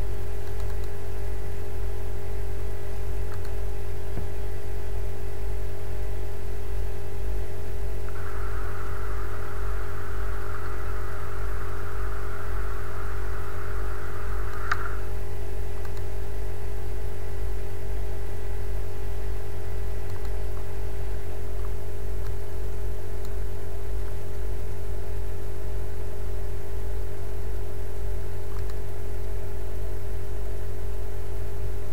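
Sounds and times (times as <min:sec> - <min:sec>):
low electrical hum and hiss: 0:00.0 - 0:31.9
sharp click: 0:00.4 - 0:01.0, 0:03.3 - 0:03.6, 0:15.8 - 0:16.1, 0:28.5 - 0:28.8
higher hiss: 0:08.1 - 0:15.2.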